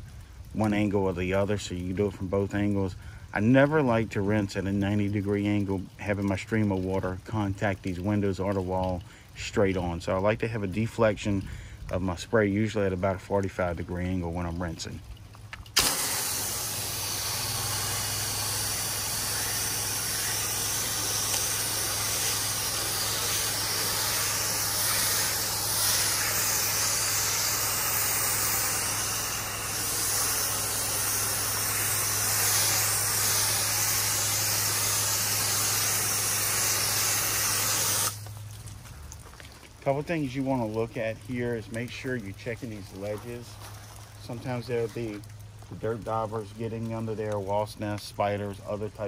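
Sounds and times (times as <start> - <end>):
steady low hum: 15.0 - 39.0
pressure washer spraying wall: 15.7 - 38.3.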